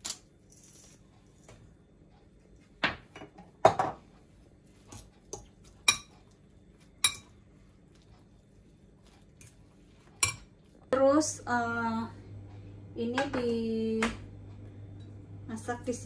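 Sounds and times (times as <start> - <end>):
fork clinking against bowl: 4.9 - 6.3, 7.0 - 7.4, 10.2 - 10.5.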